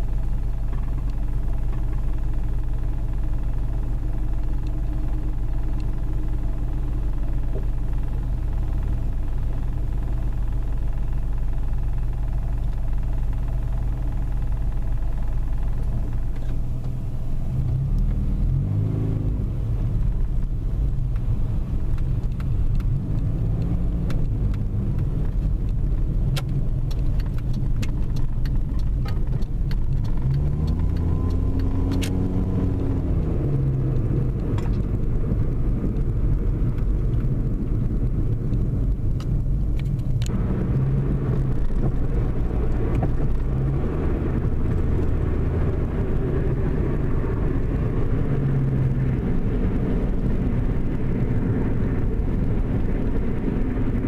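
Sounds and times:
car engine accelerating: 0.0s - 54.0s
road rumble: 0.0s - 54.0s
sharp clicks: 21.9s - 33.2s.

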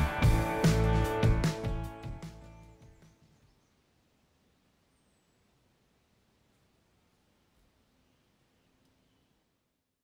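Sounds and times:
faint background hiss: 2.3s - 10.0s.

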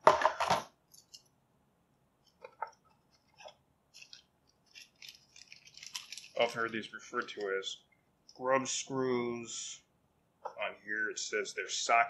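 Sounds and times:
plastic rustling: 2.4s - 7.7s
screws clinking in plastic bag: 4.0s - 7.4s.

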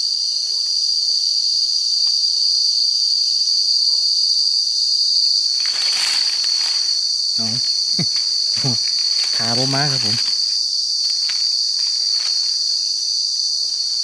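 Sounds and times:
insects buzzing: 0.0s - 14.0s
short rustling: 5.5s - 12.6s.

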